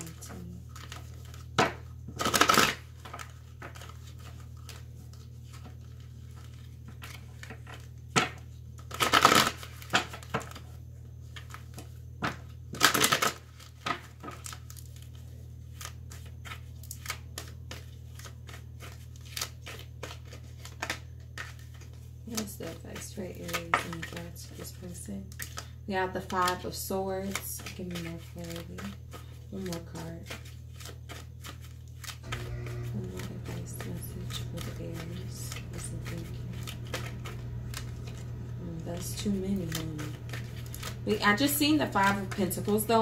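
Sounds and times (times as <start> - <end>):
cards shuffling: 0.0 - 43.0
cards riffling: 0.3 - 10.6, 11.3 - 22.0, 27.2 - 43.0
low hum: 32.2 - 43.0.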